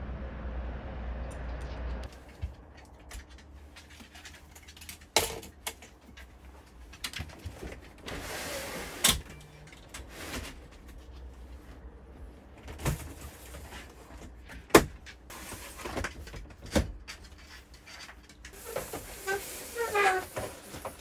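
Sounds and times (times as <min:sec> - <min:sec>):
window blinds sliding open: 0:08.0 - 0:09.3, 0:18.5 - 0:21.0.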